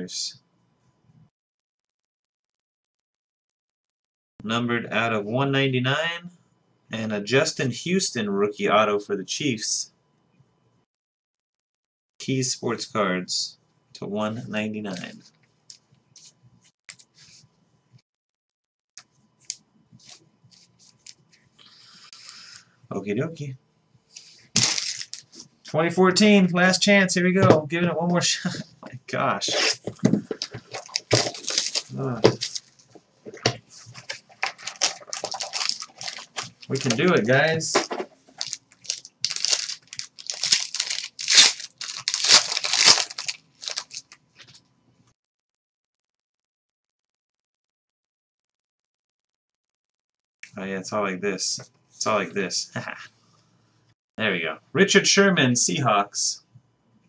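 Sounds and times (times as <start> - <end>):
plastic wrapper tearing and crinkling: 24.6 - 25.4, 30.4 - 32.8, 34.0 - 44.6.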